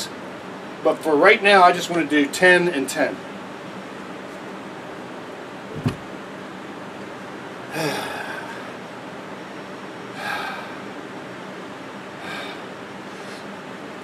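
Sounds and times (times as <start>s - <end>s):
sharp knock: 5.8s - 6.0s
man breathing out hard: 12.2s - 13.4s.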